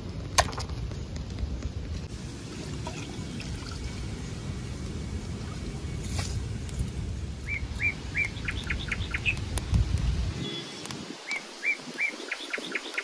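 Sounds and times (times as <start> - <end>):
low rumbling noise: 0.0 - 10.4
songbird singing: 7.4 - 9.5, 10.3 - 13.0.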